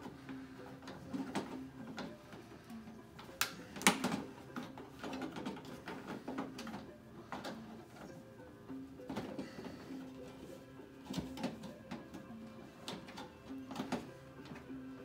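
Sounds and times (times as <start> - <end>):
hard plastic parts clicking: 0.0 - 8.2.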